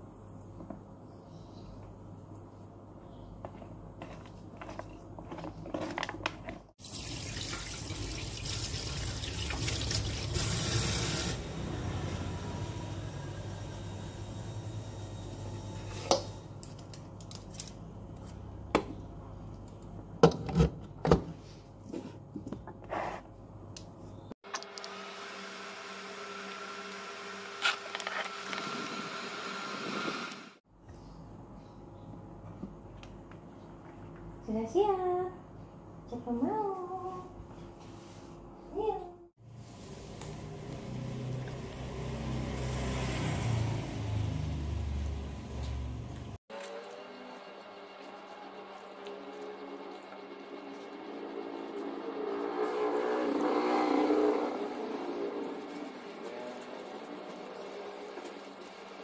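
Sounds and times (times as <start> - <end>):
water tap running: 6.8 - 11.4
electric fan running: 24.5 - 30.6, 44.9 - 59.0.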